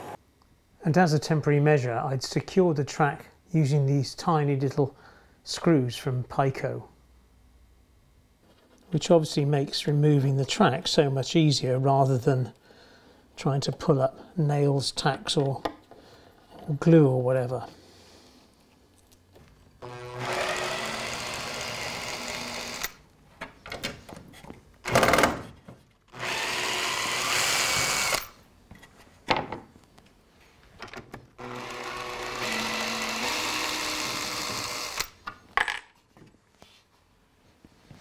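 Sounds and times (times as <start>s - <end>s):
cordless drill running: 19.8s - 23.0s, 26.1s - 28.4s, 31.4s - 35.2s.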